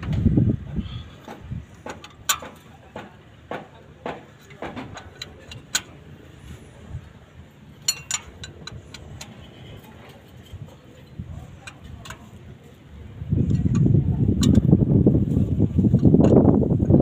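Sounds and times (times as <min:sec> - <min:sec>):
metallic tool clicks and clinks: 0:07.8 - 0:09.3.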